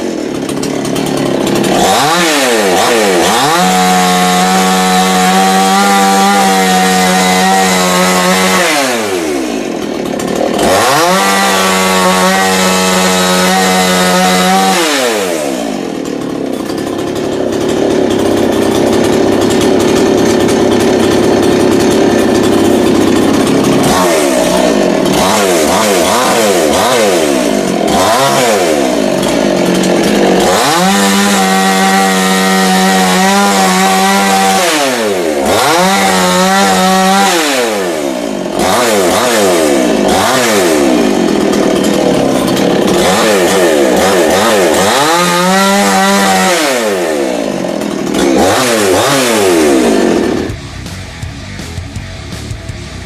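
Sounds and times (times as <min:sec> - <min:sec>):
chainsaw revving: 0:00.0 - 0:53.0.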